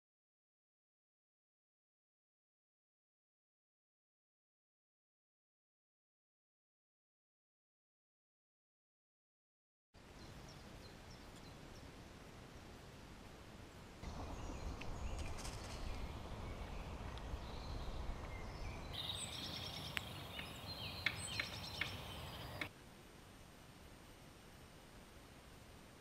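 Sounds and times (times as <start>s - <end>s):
small birds singing: 10.0s - 12.8s, 13.8s - 22.7s
background hiss: 10.0s - 26.0s.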